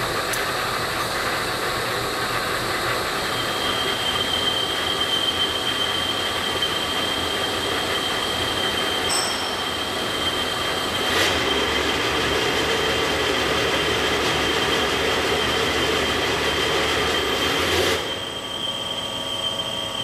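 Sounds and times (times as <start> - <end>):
high-pitched machine whine: 0.0 - 20.0.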